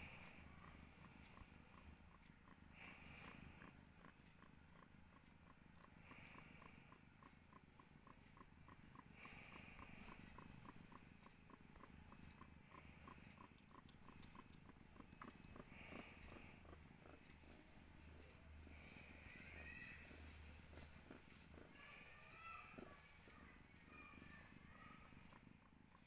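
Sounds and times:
cat purring: 0.0s - 26.0s.

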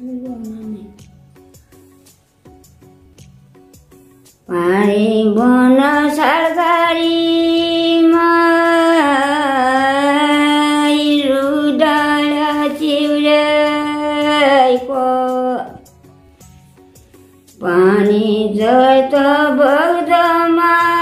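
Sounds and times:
woman singing unaccompanied: 0.0s - 1.1s, 4.5s - 15.9s, 17.6s - 21.0s.

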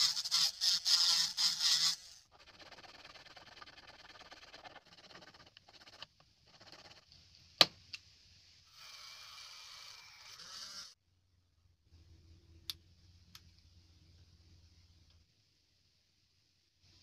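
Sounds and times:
file and sandpaper rasping: 0.0s - 7.0s.

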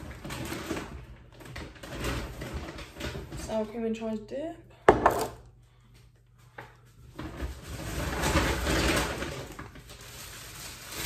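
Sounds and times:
rustling of shopping bag: 0.0s - 3.2s, 7.0s - 11.0s.

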